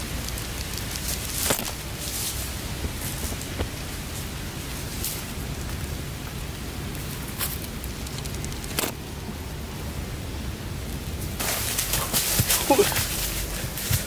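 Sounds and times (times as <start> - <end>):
rustling: 0.0 - 5.9, 11.2 - 14.0
steady background hiss: 0.0 - 14.0.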